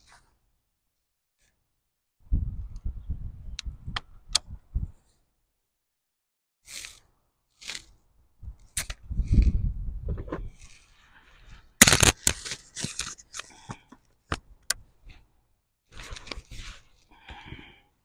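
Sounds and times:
loud sharp crack: 0:11.8 - 0:12.4.

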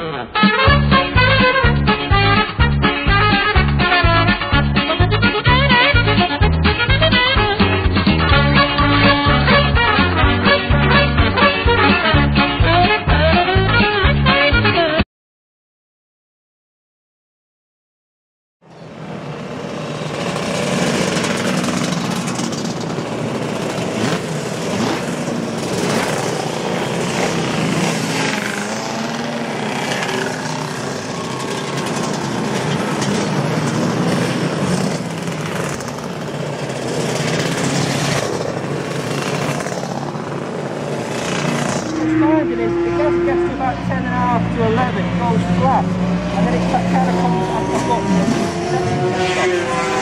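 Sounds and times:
motorcycle engines revving: 0:18.7 - 0:50.0.

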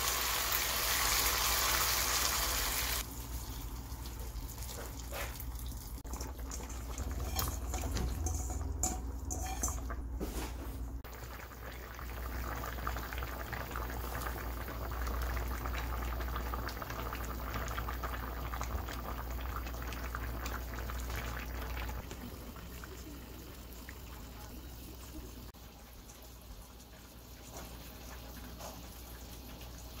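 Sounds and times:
stew bubbling: 0:03.6 - 0:10.1, 0:11.0 - 0:25.6
water pouring into pan: 0:05.4 - 0:09.7.

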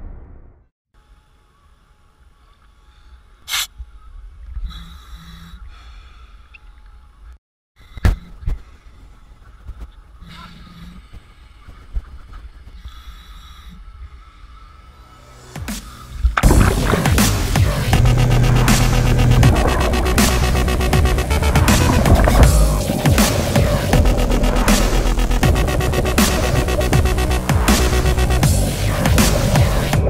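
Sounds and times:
muffled water sloshing: 0:16.4 - 0:24.6.

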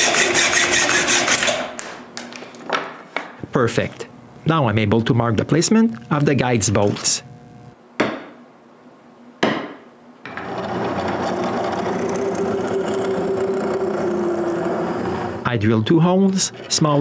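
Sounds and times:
drill press boring into wood: 0:00.0 - 0:01.7, 0:10.3 - 0:15.5.

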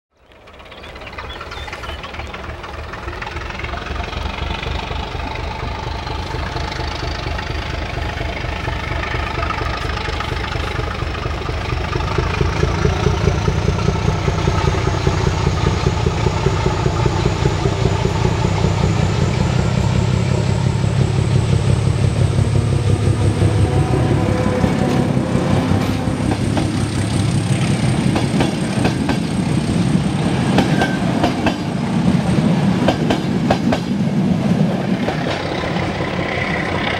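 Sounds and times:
train wheels clattering over rail joints: 0:00.3 - 0:23.5, 0:24.5 - 0:36.9
diesel locomotive engine throb: 0:00.3 - 0:36.9
high whine rising in pitch: 0:00.4 - 0:28.2.

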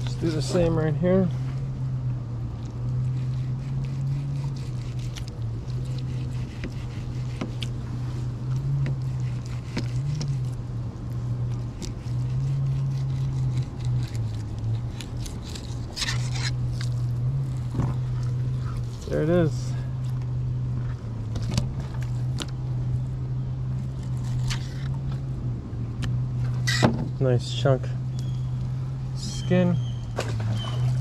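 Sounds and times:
wavering low hum: 0:00.0 - 0:31.0
knife cutting fish on plastic board: 0:03.3 - 0:07.7.

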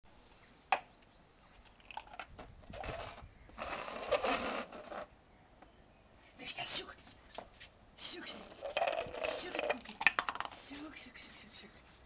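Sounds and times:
cups scraping on stone tiles: 0:01.9 - 0:05.1, 0:08.2 - 0:11.0.

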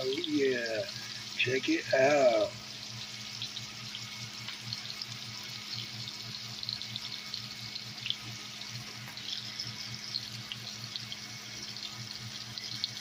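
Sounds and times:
patties sizzling in skillet: 0:00.0 - 0:13.0.

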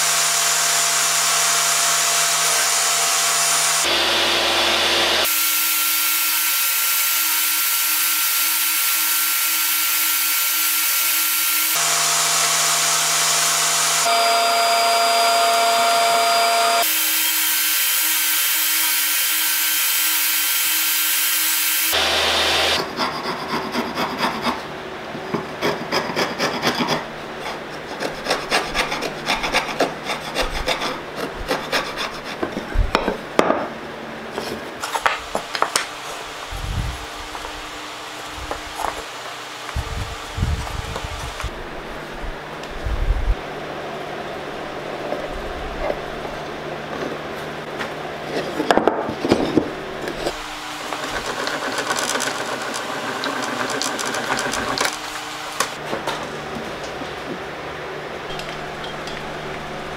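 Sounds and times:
table saw running: 0:00.0 - 0:23.4, 0:49.4 - 0:55.8
wood pieces clicking and knocking: 0:51.0 - 0:55.0.

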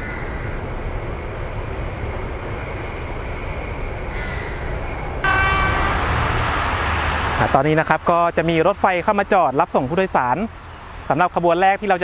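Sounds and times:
road traffic rumble: 0:00.0 - 0:12.0
train horn: 0:05.2 - 0:07.8.

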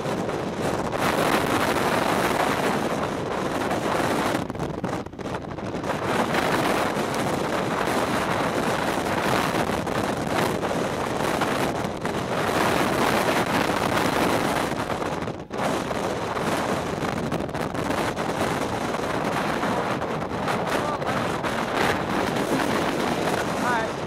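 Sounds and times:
strong wind on microphone: 0:00.0 - 0:24.0.

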